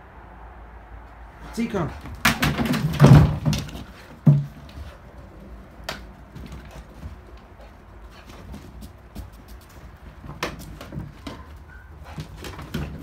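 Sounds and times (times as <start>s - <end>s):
dog paws scuffling: 1.5s - 13.0s
plastic jerrycans knocking: 2.1s - 4.8s.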